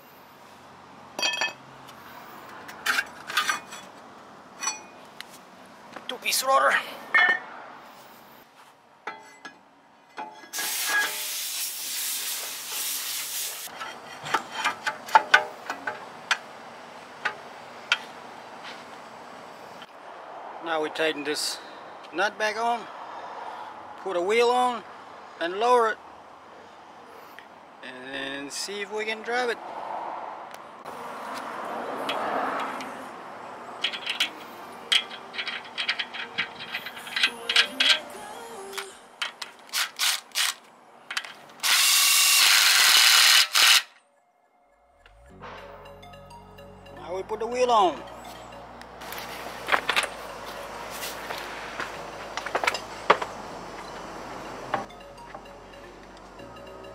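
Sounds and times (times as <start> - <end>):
metal clinks and taps: 1.2 - 1.6, 7.1 - 7.5
metallic clinking of nut on axle: 4.6 - 5.0, 33.7 - 38.1
steady hiss: 10.6 - 13.7.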